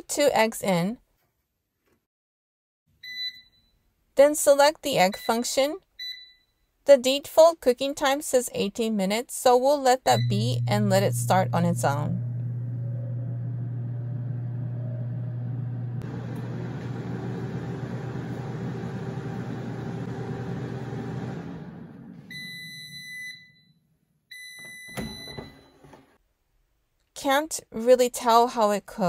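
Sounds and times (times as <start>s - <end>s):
long beeps: 10.1s - 12.2s
air fryer fan humming: 10.2s - 22.7s.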